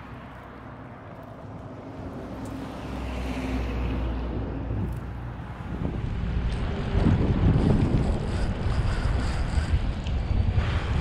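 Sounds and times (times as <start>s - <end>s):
wind buffeting microphone: 4.6s - 11.0s.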